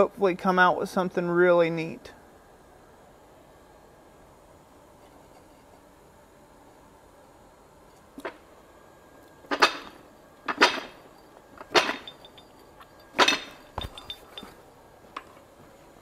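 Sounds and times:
light metal clinks: 0:11.0 - 0:15.4.

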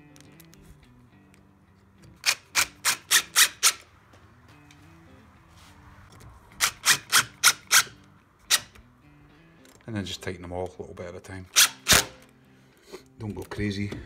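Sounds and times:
impact driver driving screws: 0:02.0 - 0:03.8, 0:06.6 - 0:08.8, 0:11.6 - 0:12.3.

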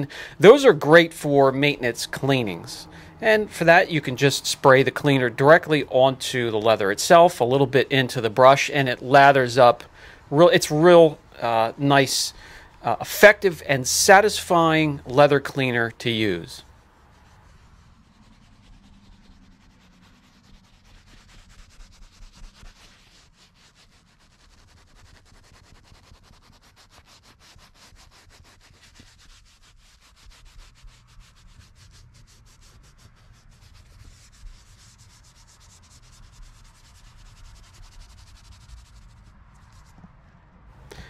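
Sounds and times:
brush scrubbing leather: 0:03.4 - 0:05.8, 0:12.9 - 0:40.2.

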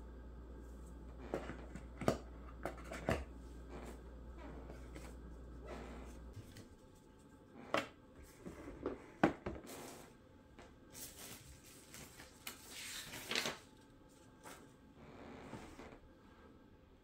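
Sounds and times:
paper rustling and sliding: 0:10.9 - 0:14.7.

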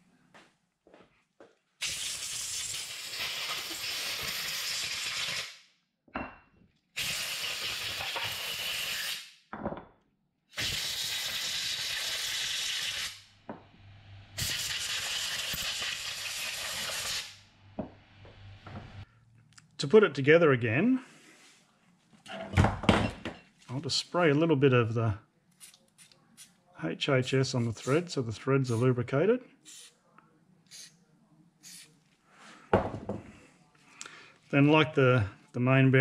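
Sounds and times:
compressed air blow gun hissing: 0:29.7 - 0:29.9.

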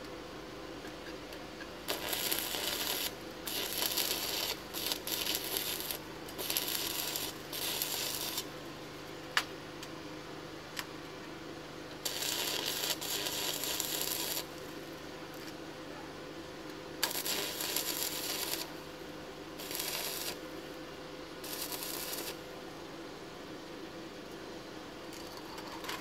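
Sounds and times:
welding arc crackling: 0:01.9 - 0:08.6, 0:12.0 - 0:14.7, 0:17.0 - 0:18.9, 0:19.6 - 0:20.5, 0:21.4 - 0:22.4.

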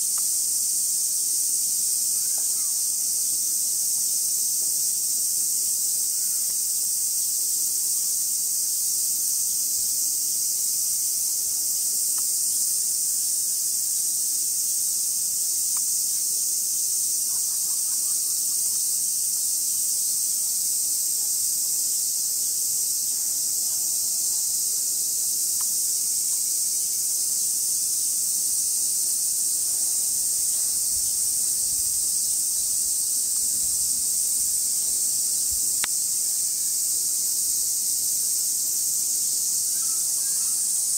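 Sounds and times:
insect chorus drone: 0:00.0 - 0:40.9
faint ticks: 0:00.1 - 0:00.4, 0:12.1 - 0:12.3, 0:15.7 - 0:15.9, 0:25.6 - 0:25.8, 0:35.8 - 0:36.0.

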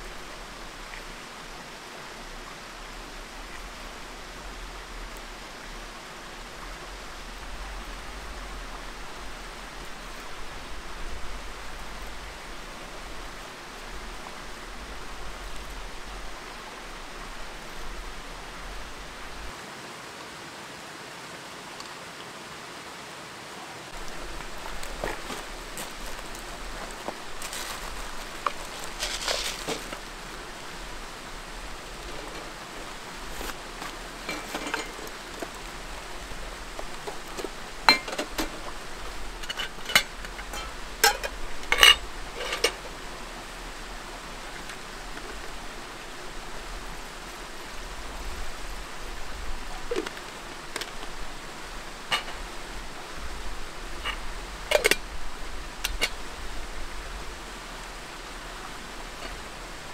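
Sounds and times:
rain hiss: 0:00.0 - 0:59.9
metal cookware clinking: 0:34.2 - 0:35.2, 0:37.9 - 0:38.6, 0:39.4 - 0:42.8.

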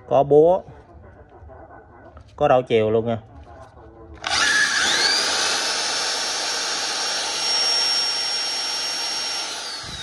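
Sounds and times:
hammer drill motor whining: 0:04.2 - 0:10.0.

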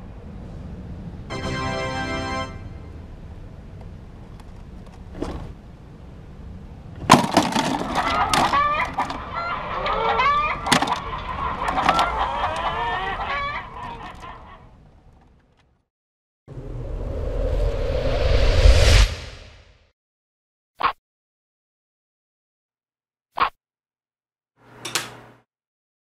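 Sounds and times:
scrabbling clicks: 0:10.6 - 0:12.7.

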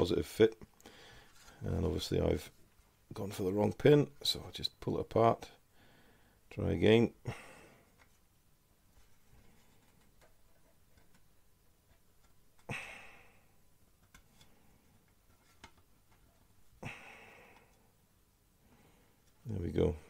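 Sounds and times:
faint plastic clicks and rubs: 0:07.9 - 0:08.3, 0:08.9 - 0:12.7, 0:13.9 - 0:16.7, 0:19.1 - 0:19.5.

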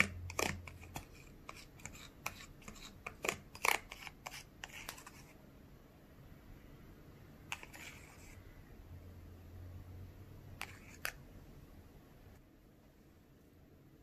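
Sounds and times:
plastic spoon scraping tray: 0:00.0 - 0:05.4, 0:07.5 - 0:08.4, 0:10.6 - 0:11.2.

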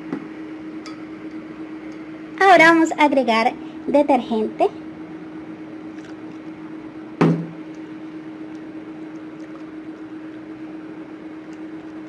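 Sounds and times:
steady low hum: 0:00.0 - 0:12.0
hard knock: 0:07.2 - 0:07.5.

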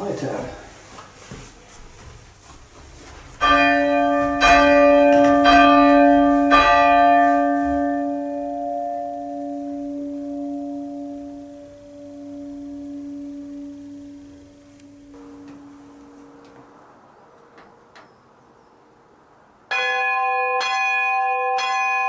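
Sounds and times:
church bell striking: 0:03.4 - 0:18.6, 0:19.7 - 0:22.0.

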